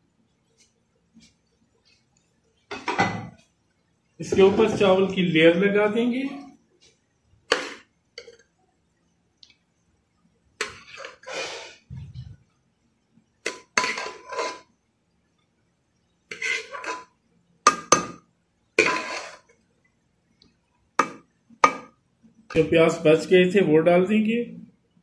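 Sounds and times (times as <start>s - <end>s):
metal spoon scraping metal pot: 10.6s - 11.8s, 13.5s - 14.7s, 16.3s - 18.1s, 18.8s - 19.5s.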